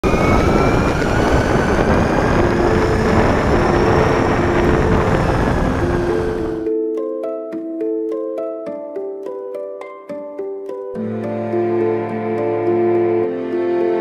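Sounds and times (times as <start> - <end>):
loud rushing motor noise: 0.0 - 6.7
plucked background music: 2.3 - 14.0.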